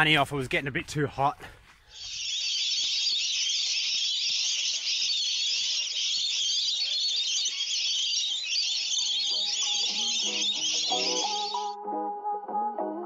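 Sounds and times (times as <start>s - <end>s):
cicadas droning: 1.9s - 11.7s.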